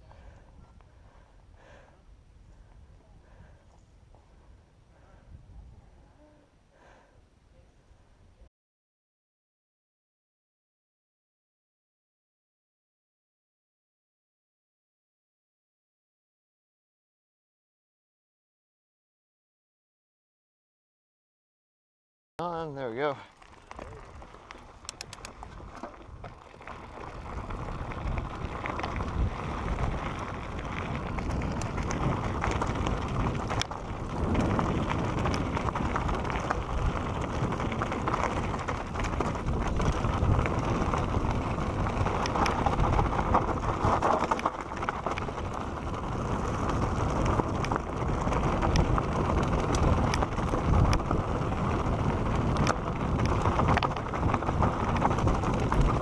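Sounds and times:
wind buffeting microphone: 0:00.0 - 0:06.2, 0:23.5 - 0:56.0
bike tyres rolling over dirt: 0:22.4 - 0:56.0
bike clicks and rattles: 0:23.1 - 0:56.0.

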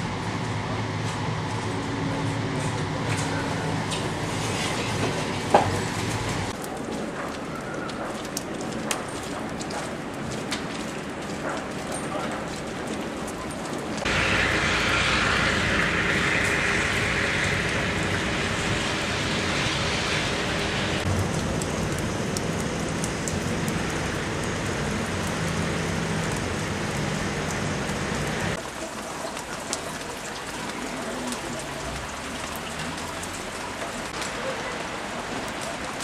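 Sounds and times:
wet snow and slush hissing: 0:14.0 - 0:21.1.

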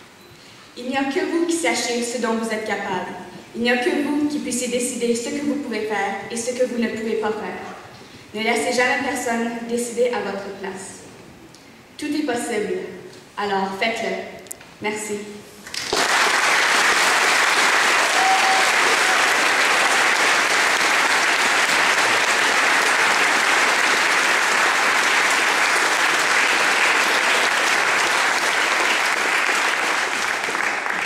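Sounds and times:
audience applauding: 0:15.7 - 0:31.0.

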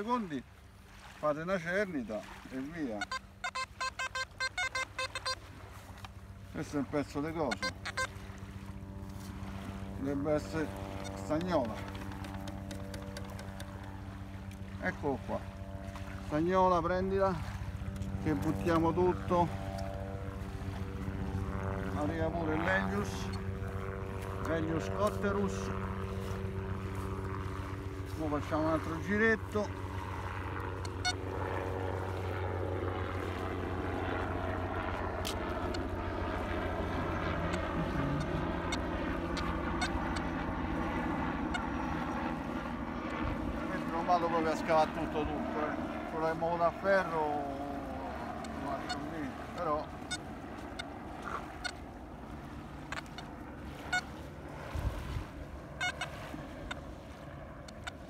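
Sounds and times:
low engine drone: 0:00.0 - 0:58.0
metal detector beeps: 0:03.0 - 0:05.4, 0:07.5 - 0:08.1.

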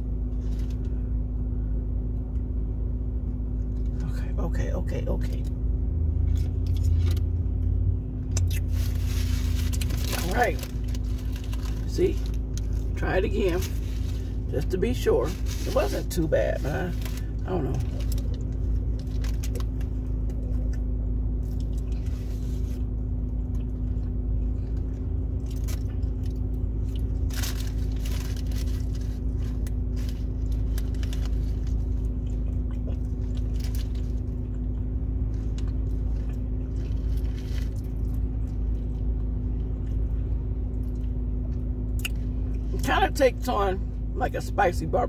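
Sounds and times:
low car cabin hum: 0:00.0 - 0:45.0
person chewing a burger: 0:05.9 - 0:14.5, 0:16.8 - 0:42.6
paper wrapper crinkling: 0:08.5 - 0:14.4, 0:15.2 - 0:19.9, 0:27.0 - 0:32.2.

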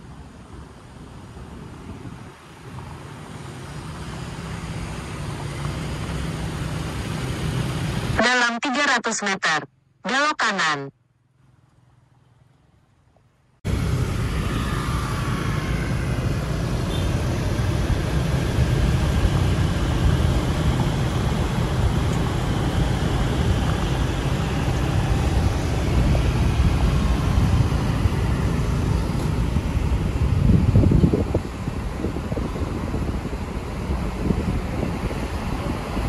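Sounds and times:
traffic noise: 0:00.0 - 0:36.0
wind rushing: 0:13.7 - 0:36.0.

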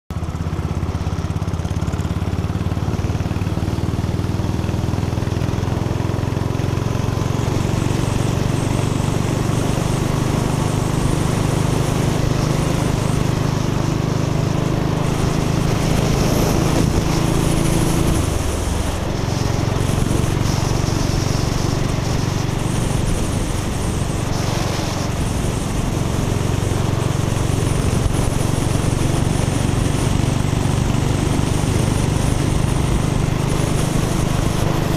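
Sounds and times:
motorcycle engine running: 0:00.1 - 0:34.9
wind rushing: 0:10.8 - 0:34.9.

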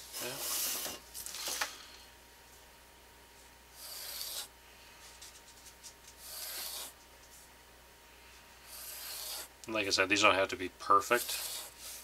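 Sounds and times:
drawing tool scratching paper: 0:03.8 - 0:04.5, 0:06.2 - 0:07.0, 0:08.7 - 0:09.5, 0:11.1 - 0:12.0.

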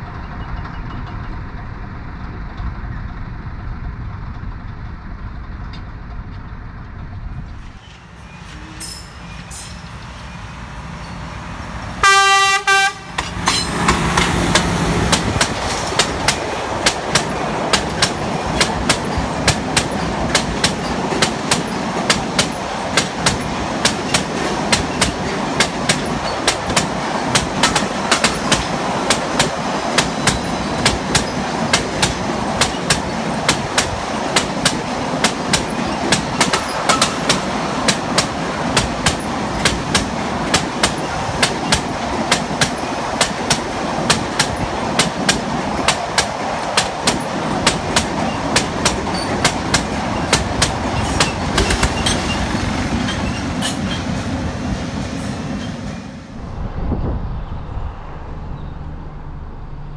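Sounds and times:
train rumbling past: 0:00.0 - 0:59.9
train horn blast: 0:12.0 - 0:13.3
wheels clacking over rail joints: 0:13.0 - 0:56.0.

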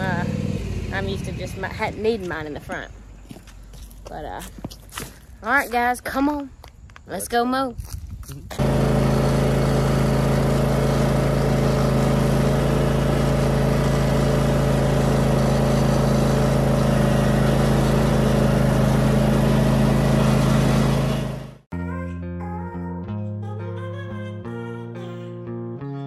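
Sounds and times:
lawn mower engine humming: 0:00.0 - 0:03.7, 0:08.6 - 0:21.7.

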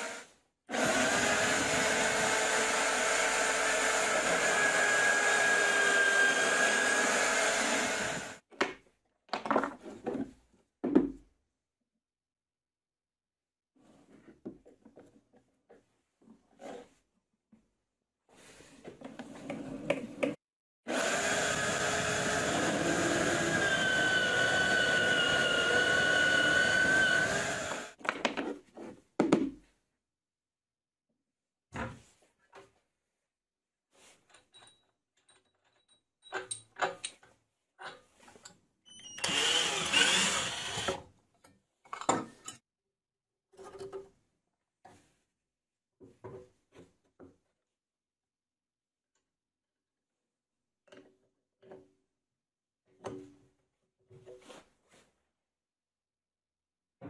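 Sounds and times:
drill press whining: 0:20.9 - 0:28.0, 0:39.1 - 0:41.0.

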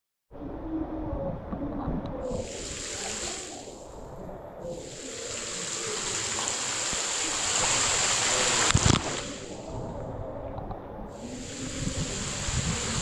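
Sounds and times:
water rushing and splashing: 0:02.3 - 0:10.1, 0:11.1 - 0:13.0.

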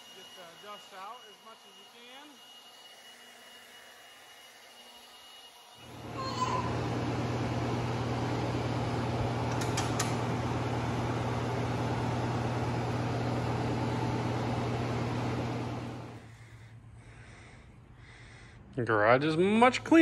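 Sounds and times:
floor blower motor hum: 0:00.0 - 0:04.7, 0:05.8 - 0:16.4.

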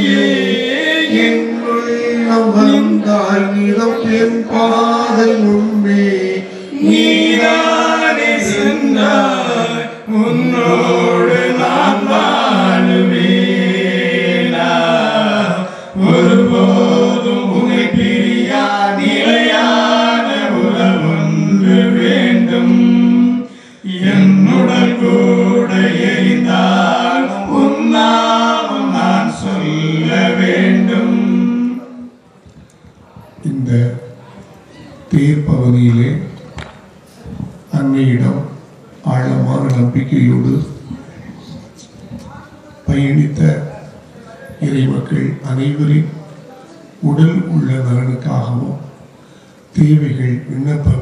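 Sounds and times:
voices singing a hymn unaccompanied: 0:00.0 - 0:34.0.

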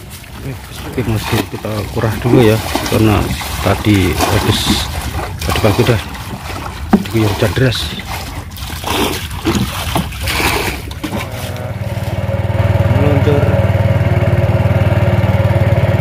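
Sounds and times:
small boat engine running: 0:00.0 - 0:16.0
water splashing: 0:00.0 - 0:16.0
knocks against wooden boat: 0:06.8 - 0:07.5.

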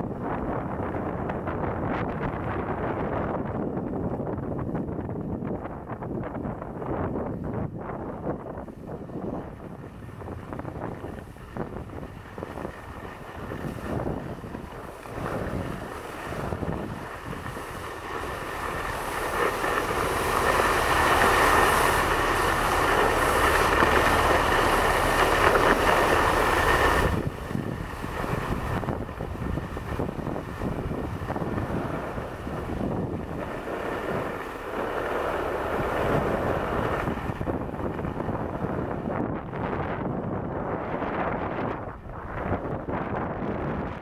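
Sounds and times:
wind on microphone: 0:00.0 - 0:44.0
skis scraping on snow: 0:10.1 - 0:39.1.

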